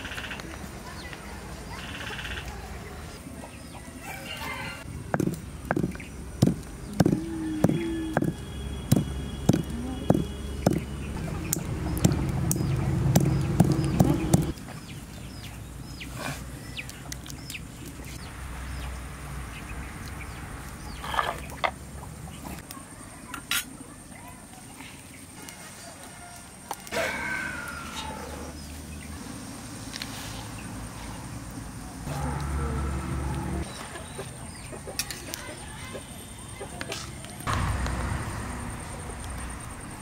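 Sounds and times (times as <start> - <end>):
chickens clucking: 33.6 - 37.3.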